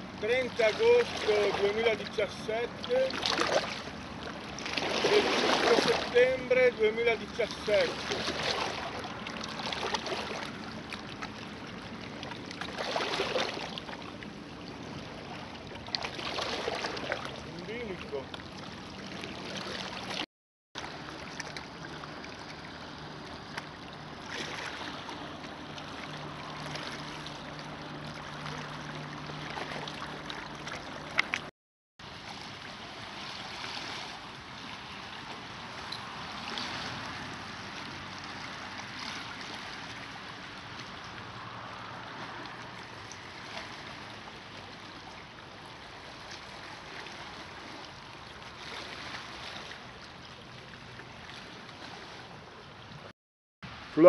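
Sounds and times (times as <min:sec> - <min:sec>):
lake waves lapping on rocks: 0:00.2 - 0:20.2, 0:20.8 - 0:53.1
low steady hum: 0:20.8 - 0:31.5.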